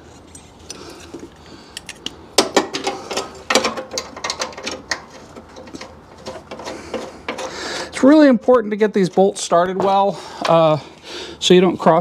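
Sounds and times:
metallic clicks of bolts and tools: 0:01.7 - 0:07.6.

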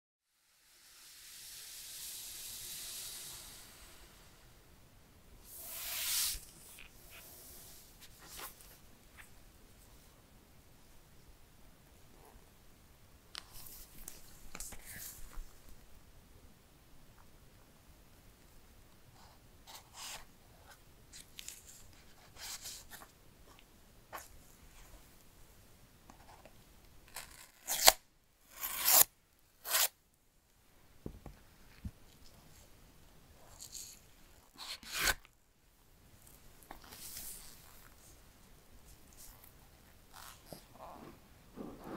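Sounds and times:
steady hiss: 0:00.3 - 0:26.0, 0:29.8 - 0:41.9
blade scratching paper seal: 0:27.1 - 0:29.9.

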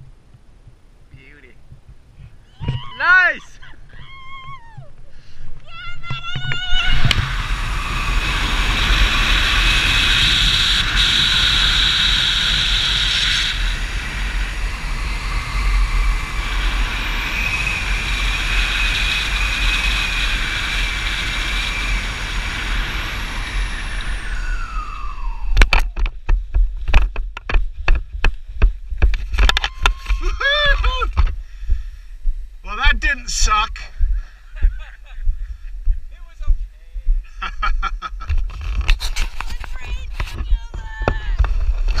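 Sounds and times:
wind buffeting microphone: 0:00.0 - 0:32.6
steady high whine: 0:06.5 - 0:28.4.

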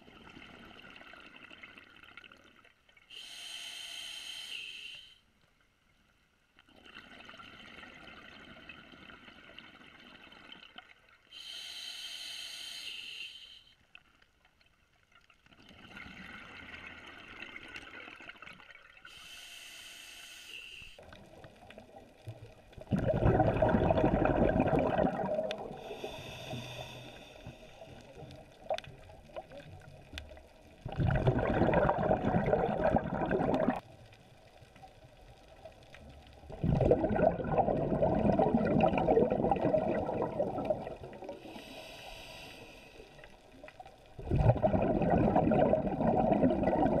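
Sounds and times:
regulator hissing inhalations: 0:03.1 - 0:05.2, 0:11.3 - 0:13.8, 0:19.1 - 0:21.0, 0:25.8 - 0:28.0, 0:41.4 - 0:43.2
bubbling exhalations: 0:22.8 - 0:26.2, 0:30.8 - 0:33.8, 0:36.4 - 0:41.4, 0:44.2 - 0:47.0.

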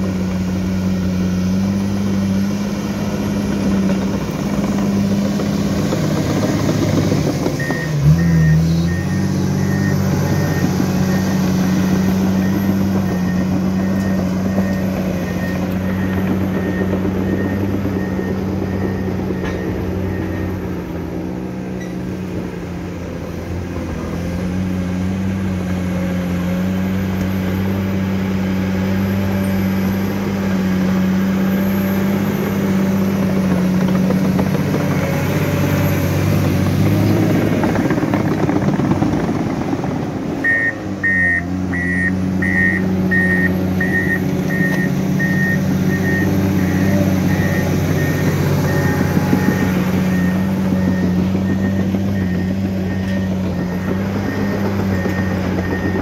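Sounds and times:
bulldozer diesel engine running: 0:00.0 - 0:56.0
bulldozer pushing soil: 0:00.0 - 0:56.0
reversing alarm beeping: 0:06.7 - 0:21.9, 0:40.4 - 0:56.0.

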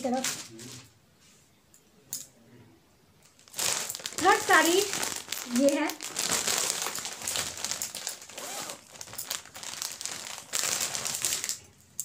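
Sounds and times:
plastic packaging crinkling: 0:00.0 - 0:00.9, 0:03.3 - 0:11.8.

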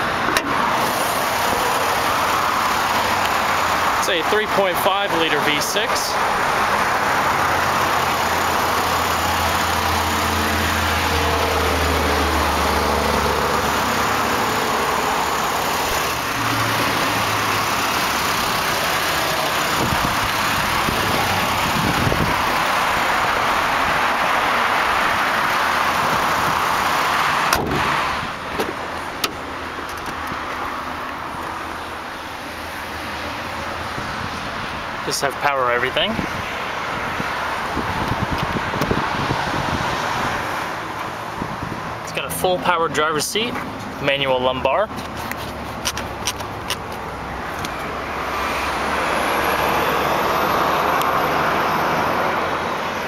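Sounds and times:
car engine idling: 0:00.1 - 0:39.0.

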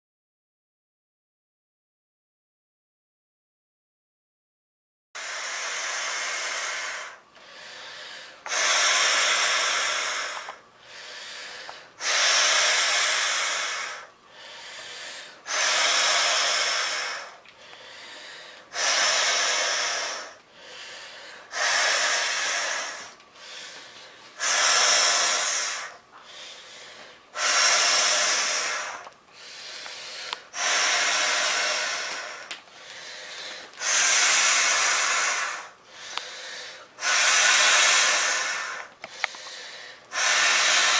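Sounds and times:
person blowing into valve: 0:05.2 - 0:07.8, 0:08.5 - 0:10.6, 0:12.0 - 0:17.4, 0:18.2 - 0:23.7, 0:24.4 - 0:26.5, 0:27.3 - 0:38.9, 0:40.1 - 0:40.9
intake of breath: 0:05.2 - 0:40.9.

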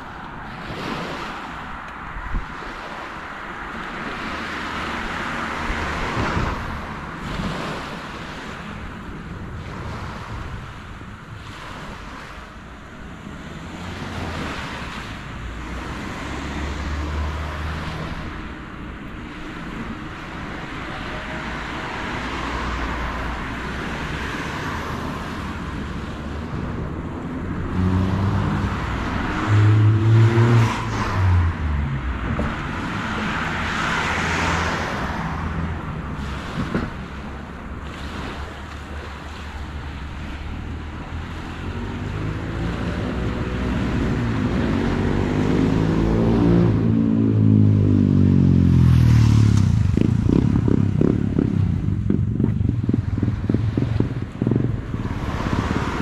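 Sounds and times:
vehicles passing on a road: 0:00.0 - 0:56.0
low rapid engine pulsing: 0:38.7 - 0:56.0.

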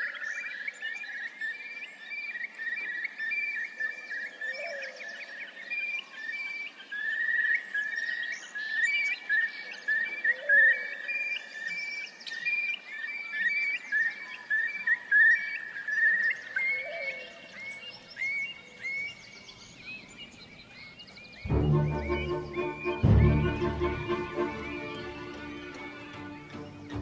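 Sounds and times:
low rising and falling call: 0:21.5 - 0:27.0.

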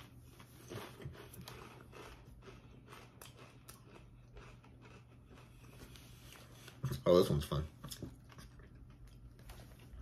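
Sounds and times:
chewing potato chip: 0:00.0 - 0:07.1
low steady hum: 0:00.0 - 0:10.0.

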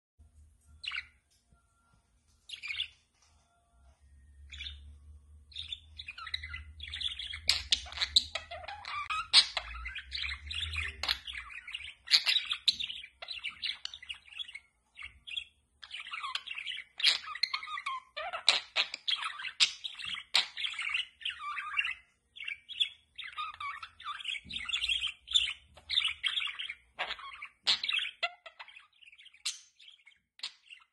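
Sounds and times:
budgerigar chirping and warbling: 0:05.5 - 0:30.9.

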